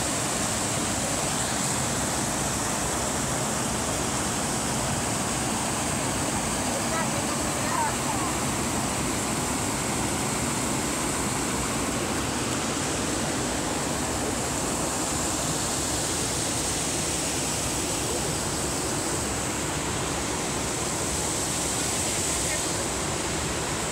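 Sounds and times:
river rushing over rocks: 0:00.0 - 0:23.9.

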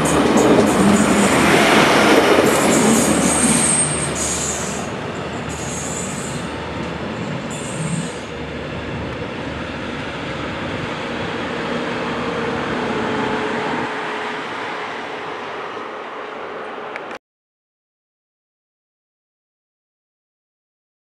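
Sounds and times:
railcar rolling slowly: 0:00.0 - 0:17.2
train passing close: 0:00.0 - 0:17.2
high-pitched wheel squeal: 0:02.5 - 0:06.6, 0:07.2 - 0:08.3.

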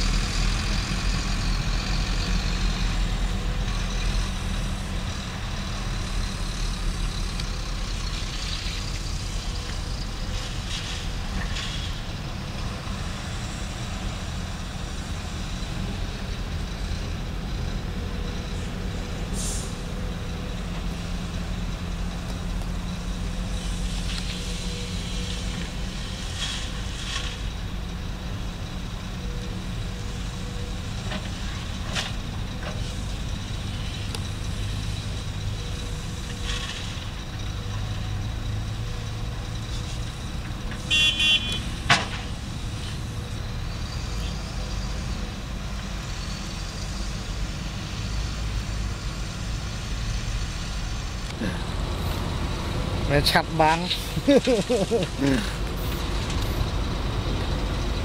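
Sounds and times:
diesel engines running: 0:00.0 - 0:58.0
vehicle horn toots: 0:40.9 - 0:41.7.

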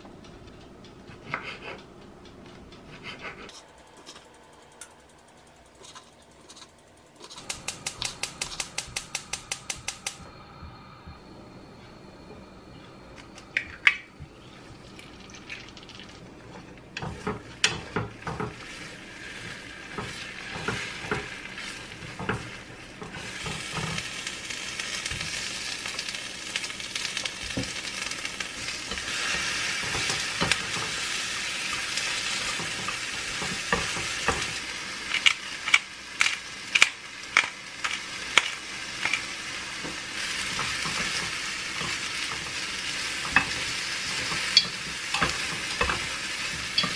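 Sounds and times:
eggs sizzling in oil: 0:13.5 - 0:46.9
chopsticks tapping and scraping pan: 0:16.5 - 0:24.1, 0:28.9 - 0:39.2, 0:39.8 - 0:46.9.

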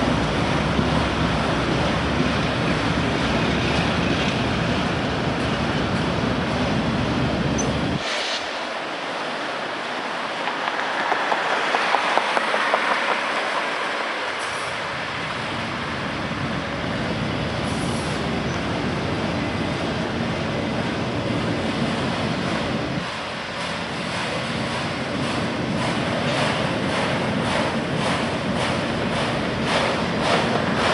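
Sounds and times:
train wheels rolling on rails: 0:00.0 - 0:30.9.

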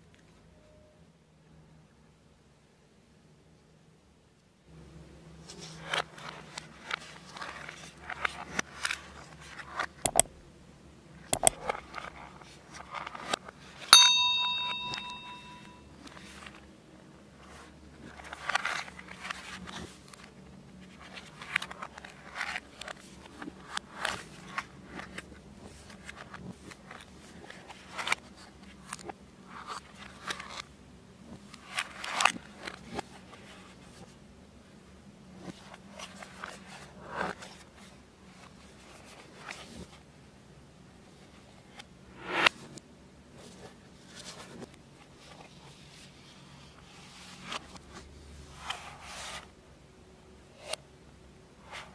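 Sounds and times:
sharp ringing tap: 0:14.0 - 0:15.8.

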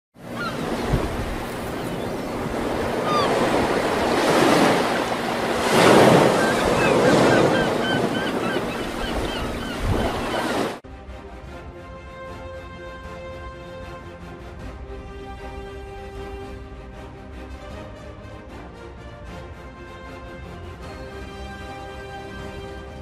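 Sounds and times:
ocean waves breaking: 0:00.2 - 0:10.8
high chirping cries: 0:06.4 - 0:10.6.

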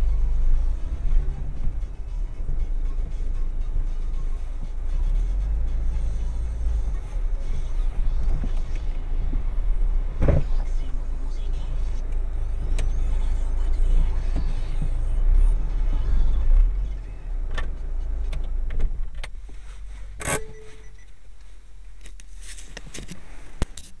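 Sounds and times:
car engine and road rumble: 0:00.0 - 0:24.0.

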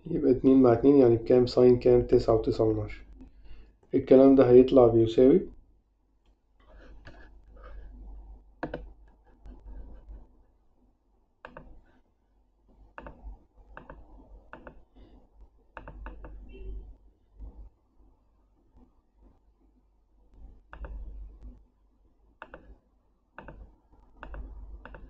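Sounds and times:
low steady hum: 0:00.0 - 0:25.0
computer mouse clicks: 0:08.6 - 0:10.2, 0:11.4 - 0:11.8, 0:12.9 - 0:14.9, 0:15.7 - 0:16.5, 0:20.7 - 0:21.6, 0:22.4 - 0:22.8, 0:23.4 - 0:25.0.

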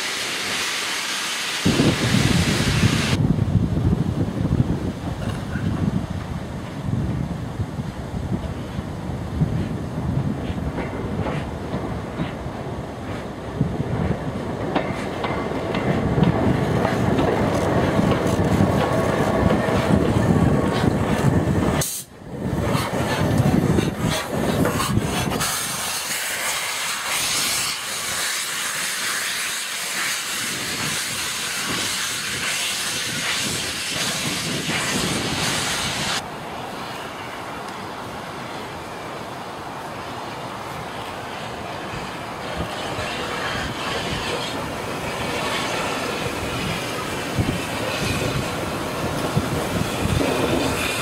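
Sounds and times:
steam hissing from drain cocks: 0:00.0 - 0:03.2, 0:23.8 - 0:36.2, 0:42.4 - 0:51.0
steam locomotive rumbling: 0:00.0 - 0:51.0
train noise: 0:00.0 - 0:51.0.

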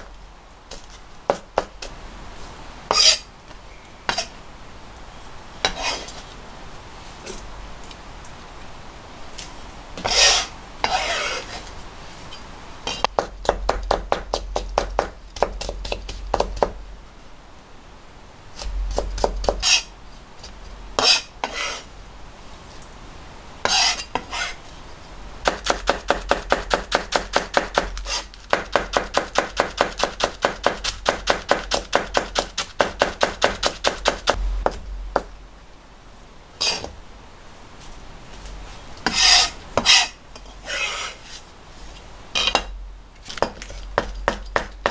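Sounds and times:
blade scraping across board: 0:02.9 - 0:03.3, 0:05.7 - 0:06.4, 0:10.0 - 0:11.8, 0:18.6 - 0:19.9, 0:21.0 - 0:21.9, 0:23.6 - 0:24.6, 0:28.0 - 0:28.4, 0:36.6 - 0:36.9, 0:39.0 - 0:41.4.

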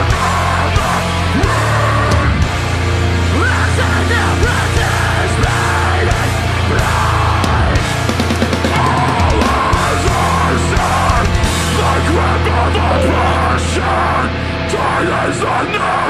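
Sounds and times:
distorted low guitars: 0:00.0 - 0:16.0.

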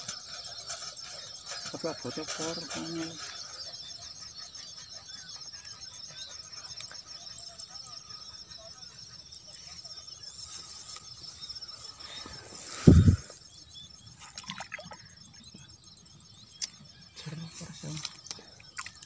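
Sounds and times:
bird chirps: 0:00.0 - 0:19.0.

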